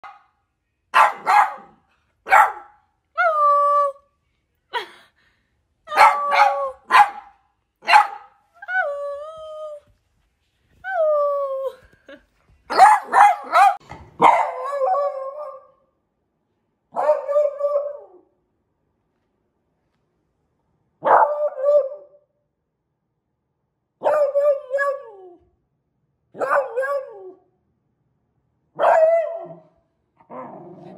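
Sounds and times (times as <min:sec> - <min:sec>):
dog barking: 0:00.0 - 0:00.3, 0:00.9 - 0:02.8, 0:05.9 - 0:08.4, 0:12.7 - 0:15.6, 0:16.9 - 0:18.0, 0:21.0 - 0:22.0, 0:24.0 - 0:25.0, 0:26.3 - 0:27.1, 0:28.8 - 0:29.6.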